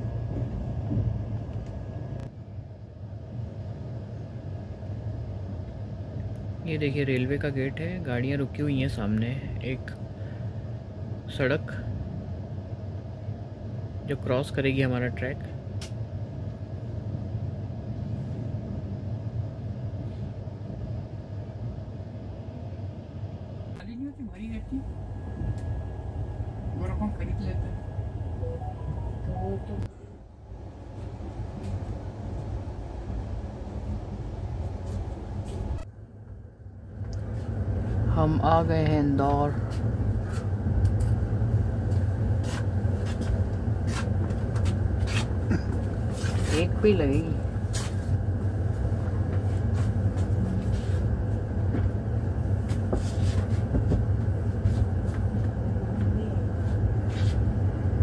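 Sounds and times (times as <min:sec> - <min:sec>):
train rumbling: 0:00.0 - 0:58.0.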